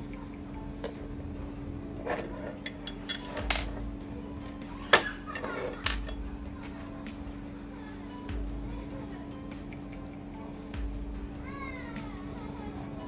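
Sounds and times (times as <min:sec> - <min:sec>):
metal vise parts clinking: 0:02.1 - 0:03.8, 0:04.9 - 0:06.2.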